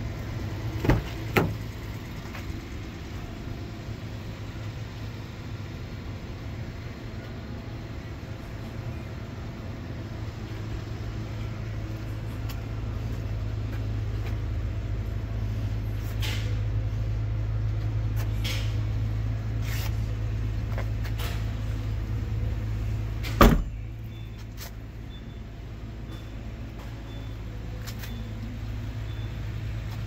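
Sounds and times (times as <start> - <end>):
car liftgate thump: 0.8 - 1.6, 23.3 - 23.8.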